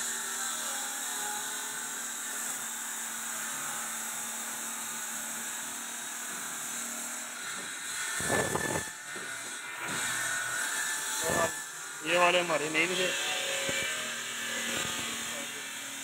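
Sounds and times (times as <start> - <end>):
stone-cutting saw hissing: 5.4 - 16.0.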